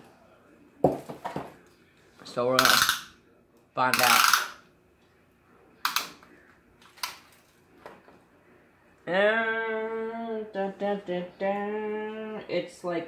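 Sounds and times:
man humming: 0:09.1 - 0:12.4.

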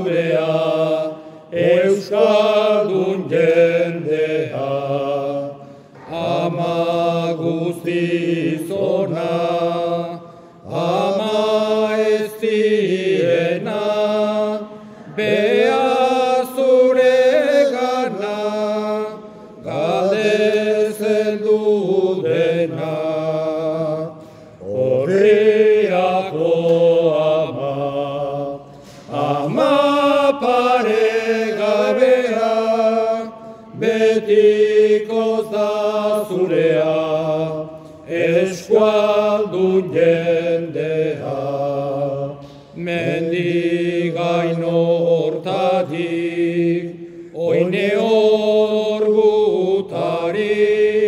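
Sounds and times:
men singing a hymn: 0:00.0 - 0:51.0.

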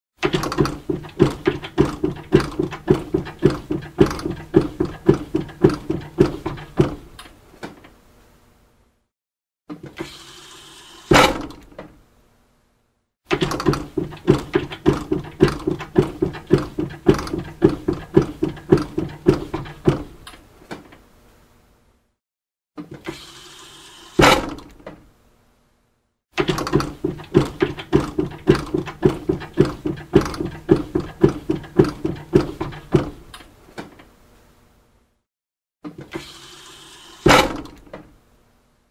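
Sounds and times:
hydraulic hiss ending in thunk: 0:10.0 - 0:11.6, 0:23.0 - 0:24.7, 0:36.0 - 0:37.8.

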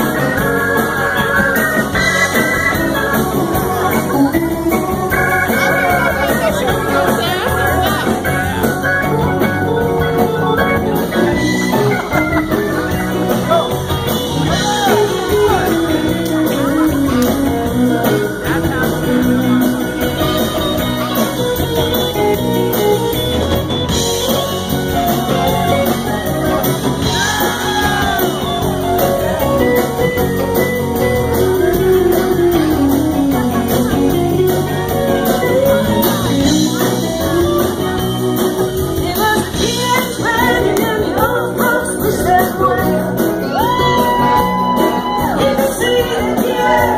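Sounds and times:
rock band playing: 0:00.0 - 0:46.9
person singing: 0:39.0 - 0:46.9.

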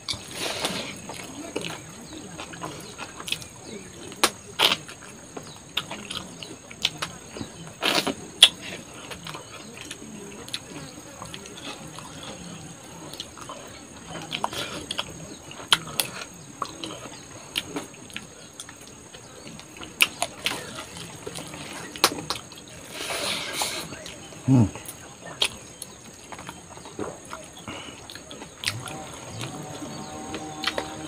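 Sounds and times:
chewing and lip smacks: 0:00.5 - 0:22.8, 0:23.5 - 0:31.0
high insect trill: 0:27.5 - 0:31.0.

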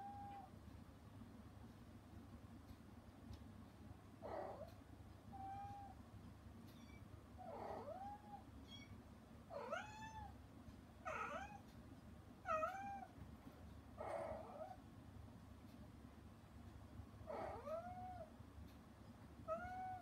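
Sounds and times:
cat meowing: 0:05.4 - 0:06.0, 0:06.7 - 0:10.3, 0:11.1 - 0:11.6, 0:12.5 - 0:13.1, 0:17.3 - 0:18.3, 0:19.5 - 0:20.0.

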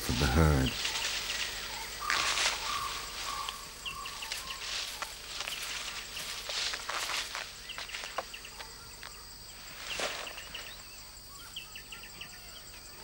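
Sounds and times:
rustling swishes: 0:00.0 - 0:08.3
high insect drone: 0:00.0 - 0:13.0
small birds chirping: 0:00.0 - 0:13.0.

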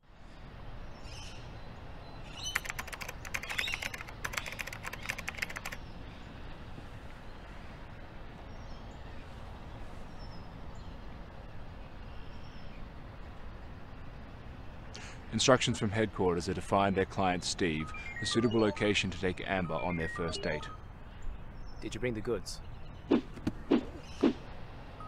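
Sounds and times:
faint bird chirps: 0:01.0 - 0:06.4, 0:17.6 - 0:23.2
rapid sharp clicks: 0:02.5 - 0:05.8.

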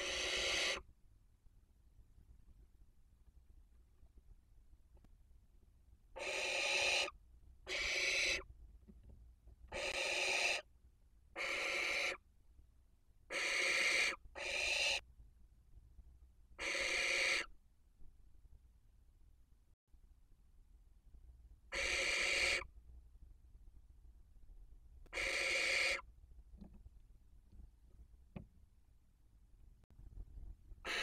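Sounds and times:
owls hissing screeches: 0:00.0 - 0:00.8, 0:06.2 - 0:08.4, 0:09.8 - 0:10.7, 0:11.4 - 0:12.2, 0:13.3 - 0:15.0, 0:16.6 - 0:17.5, 0:21.7 - 0:22.7, 0:25.1 - 0:26.1.

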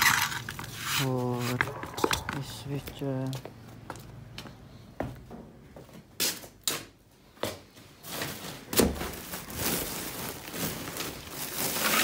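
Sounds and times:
plastic bag rustling: 0:08.0 - 0:12.0.

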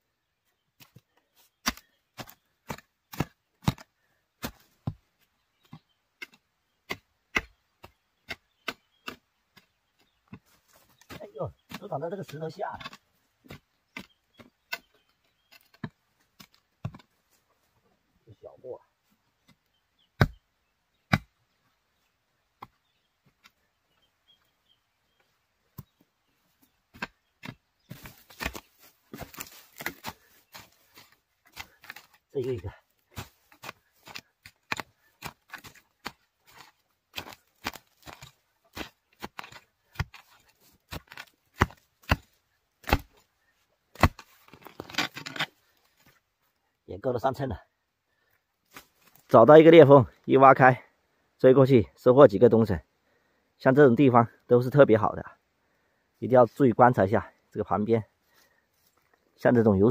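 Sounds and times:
mattock chopping into soil: 0:01.6 - 0:05.0, 0:05.6 - 0:17.1, 0:19.4 - 0:21.4, 0:25.7 - 0:26.0, 0:26.9 - 0:43.3, 0:43.9 - 0:46.2, 0:48.7 - 0:49.2.

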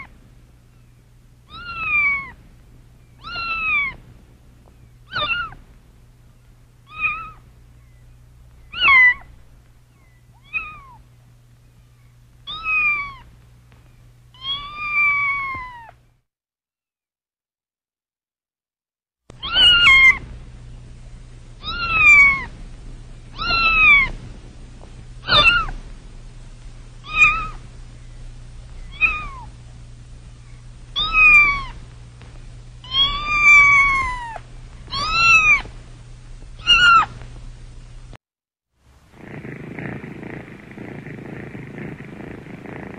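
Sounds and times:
faint low hum: 0:00.0 - 0:16.3, 0:19.3 - 0:38.2, 0:38.8 - 0:42.9
cat meowing: 0:01.5 - 0:02.4, 0:03.2 - 0:04.0, 0:05.1 - 0:05.6, 0:06.9 - 0:07.4, 0:08.7 - 0:09.3, 0:10.4 - 0:11.0, 0:12.5 - 0:13.3, 0:14.4 - 0:16.0, 0:19.4 - 0:20.2, 0:21.6 - 0:22.5, 0:23.4 - 0:24.1, 0:25.3 - 0:25.7, 0:27.0 - 0:27.6, 0:28.9 - 0:29.5, 0:31.0 - 0:31.8, 0:32.8 - 0:35.7, 0:36.6 - 0:37.2.

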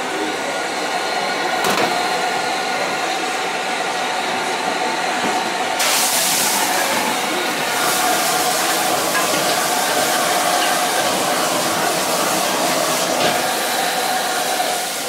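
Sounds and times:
food sizzling in hot wok: 0:05.8 - 0:15.0
gas burner and extractor hood rushing: 0:05.8 - 0:15.0.

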